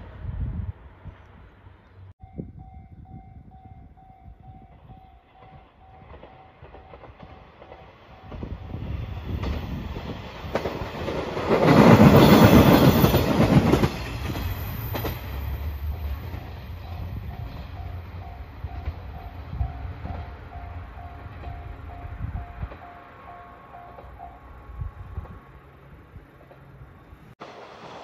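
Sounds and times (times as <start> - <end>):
diesel railcar passing: 0.0 - 28.0
wheels clacking over rail joints: 5.3 - 24.4.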